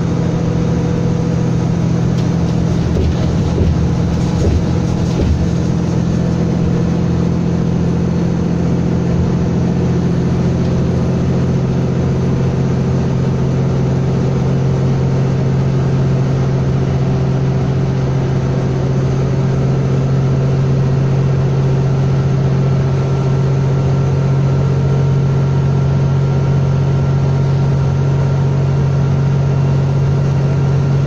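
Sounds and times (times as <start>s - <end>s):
tyre and road noise: 0.0s - 11.8s
bus engine drone: 0.0s - 31.0s.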